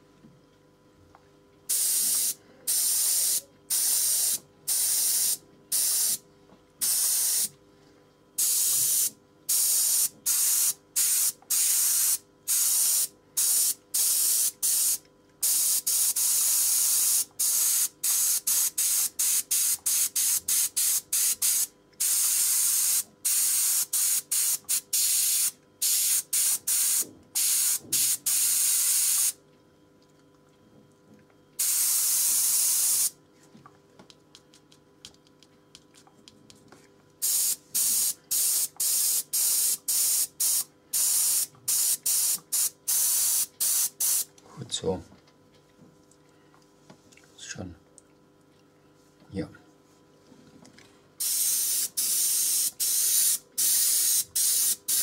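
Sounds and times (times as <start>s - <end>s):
airbrush hissing in bursts: 1.7s - 6.2s, 6.8s - 7.5s, 8.4s - 29.4s, 31.6s - 33.1s, 37.2s - 44.2s, 51.2s - 55.0s.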